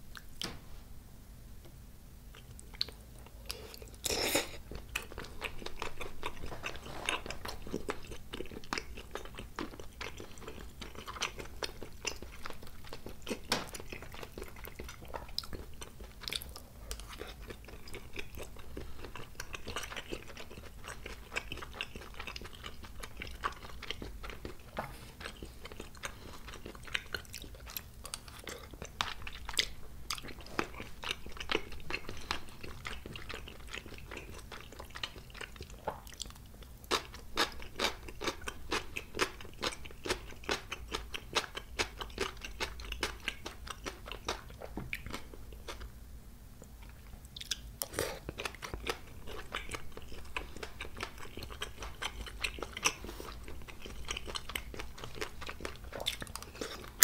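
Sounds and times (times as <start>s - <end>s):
close chewing mouth clicks: 2.3s - 45.8s, 46.7s - 57.0s.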